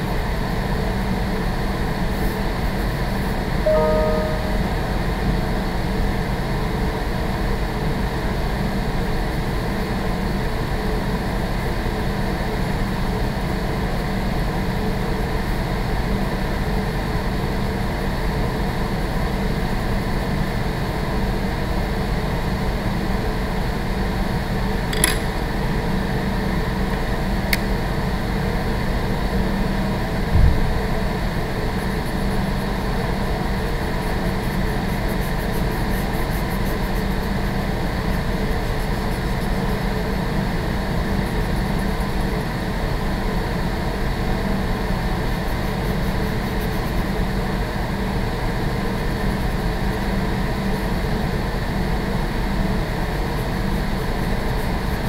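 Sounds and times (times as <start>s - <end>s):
ventilation drone: 24.4s - 49.8s
short low thump: 30.3s - 30.8s.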